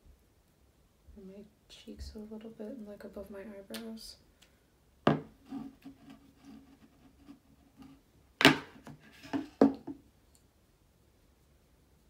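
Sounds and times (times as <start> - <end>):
sharp knocks on tabletop: 5.1 - 5.3.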